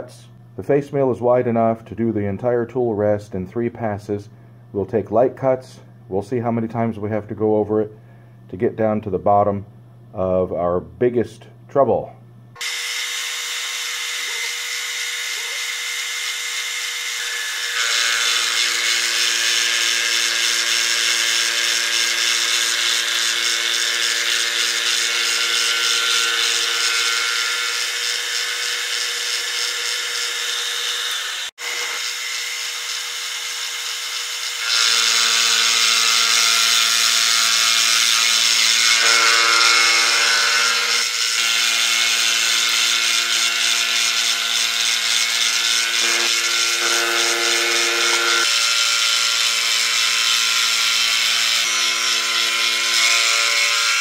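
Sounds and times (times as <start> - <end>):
milling cutter cutting metal: 12.6 - 54.0.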